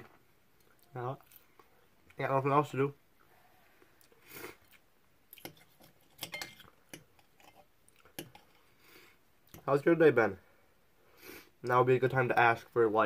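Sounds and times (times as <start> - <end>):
cutlery scraping on plate: 5.4 - 7.6.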